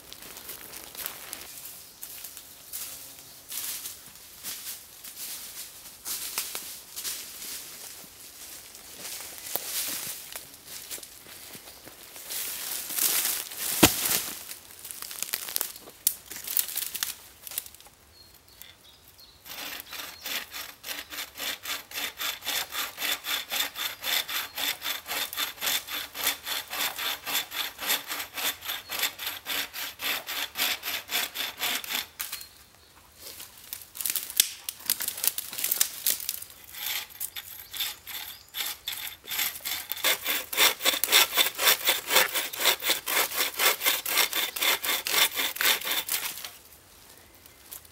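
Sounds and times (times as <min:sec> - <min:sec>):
footsteps on forest floor: 0:00.0 - 0:04.7, 0:07.8 - 0:16.8
bucksaw cutting a log: 0:13.8 - 0:14.2, 0:19.5 - 0:32.1, 0:36.6 - 0:46.5.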